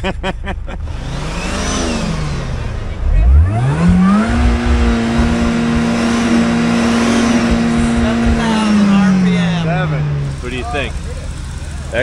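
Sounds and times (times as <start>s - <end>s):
car engine running: 0.0s - 12.0s
low rumbling and knocks: 2.8s - 11.0s.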